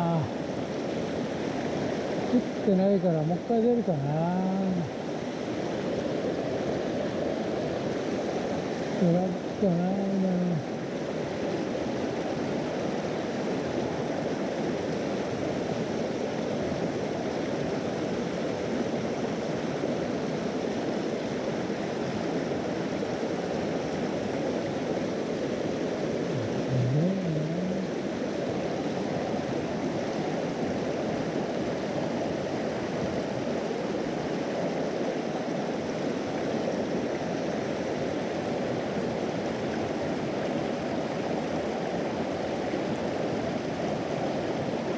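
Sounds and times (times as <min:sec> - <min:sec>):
stream rushing over rocks: 0:00.0 - 0:44.9
low voice murmuring: 0:26.3 - 0:28.0.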